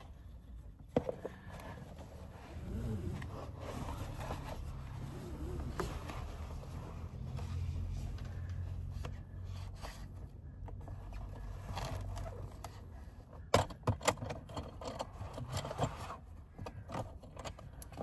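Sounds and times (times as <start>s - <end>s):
scraping and rustling: 0.0s - 13.2s.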